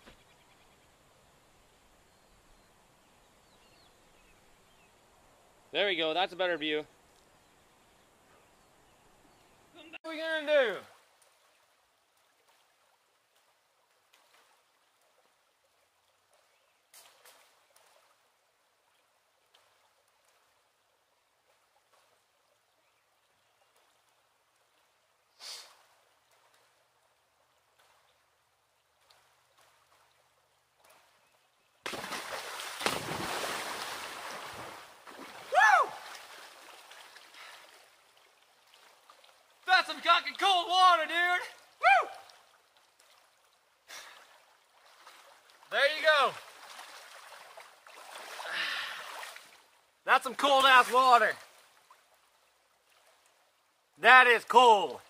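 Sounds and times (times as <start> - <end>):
water splashing from wading: 10.6 - 25.0, 25.7 - 49.8, 50.7 - 53.7
person yelping: 35.5 - 36.0, 41.8 - 42.3.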